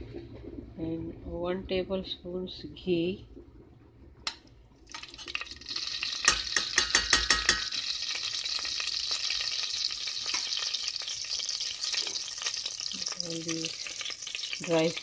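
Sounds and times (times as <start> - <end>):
ghee sizzling in oil: 4.9 - 15.0
sharp metallic taps: 6.3 - 7.8.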